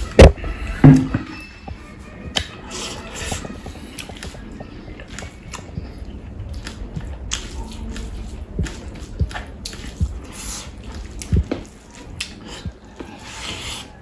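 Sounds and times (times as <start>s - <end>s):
wet squishing: 6.5s - 14.0s.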